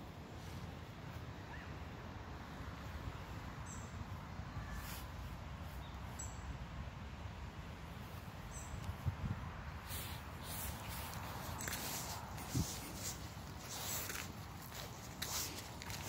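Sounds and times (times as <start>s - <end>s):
small birds chirping: 3.2s - 6.5s, 8.0s - 16.0s.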